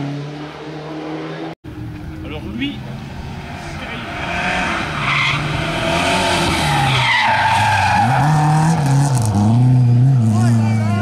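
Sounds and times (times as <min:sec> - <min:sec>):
rally car engine revving: 0:02.8 - 0:11.0.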